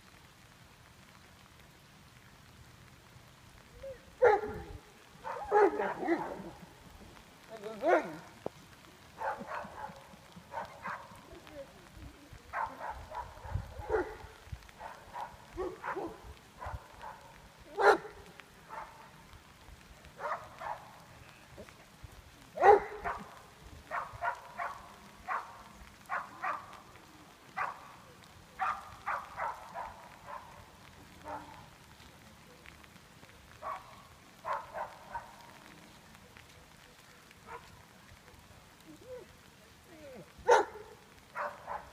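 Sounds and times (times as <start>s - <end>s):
dog barking: 4.2s - 6.5s, 7.8s - 8.2s, 9.2s - 11.2s, 12.5s - 19.0s, 20.2s - 21.0s, 22.6s - 23.3s, 23.9s - 26.8s, 27.6s - 27.9s, 28.6s - 30.6s, 31.2s - 31.6s, 33.6s - 35.4s, 37.4s - 37.8s, 40.4s - 41.9s.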